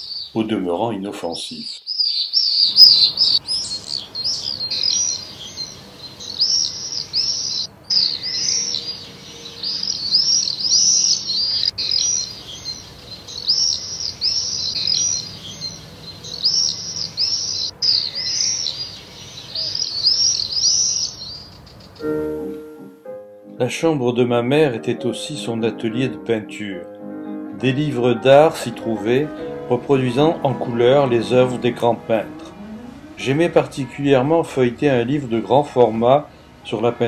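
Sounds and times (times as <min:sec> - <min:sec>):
swifts screaming: 0:00.0 - 0:00.6, 0:01.8 - 0:22.5, 0:28.3 - 0:36.6.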